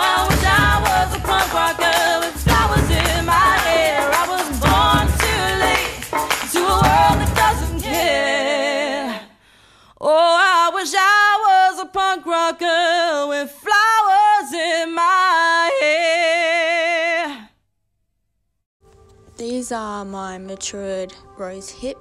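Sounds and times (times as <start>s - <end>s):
band music: 0.0s - 7.8s
woman singing with vibrato: 0.0s - 9.4s, 10.0s - 17.5s.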